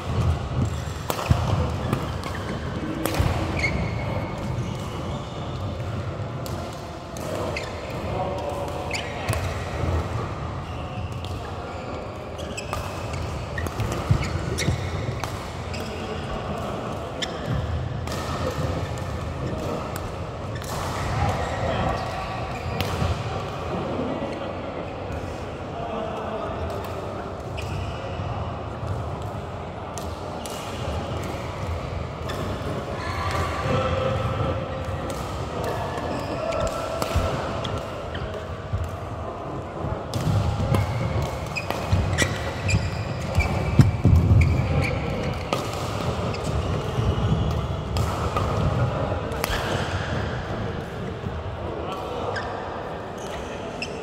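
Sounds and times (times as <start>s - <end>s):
rackets striking shuttlecock: 0.1s - 7.8s, 12.4s - 23.2s, 40.1s - 50.0s.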